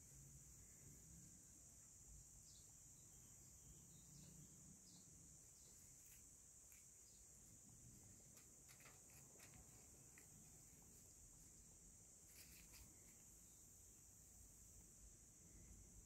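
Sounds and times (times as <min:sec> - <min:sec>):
insects chirring: 0:00.0 - 0:16.0
soft ticks and rustles: 0:08.1 - 0:11.6, 0:12.2 - 0:13.3.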